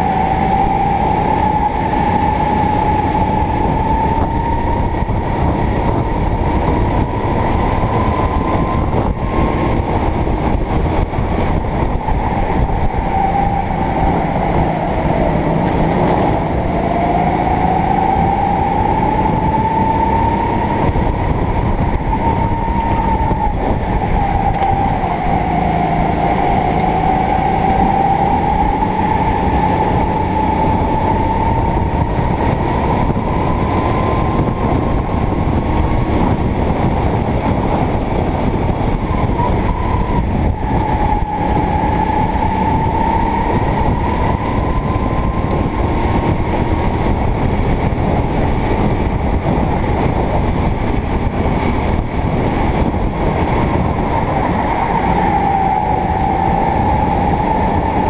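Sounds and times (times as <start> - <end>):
kart engine running hard: 0.0 - 58.0.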